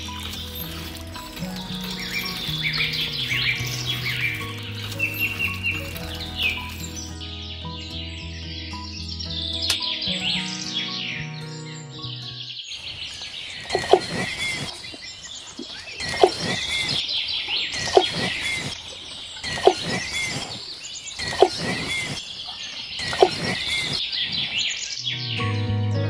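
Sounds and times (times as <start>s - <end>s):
music: 0.0s - 12.6s, 25.0s - 26.0s
birds chirping: 0.0s - 25.7s.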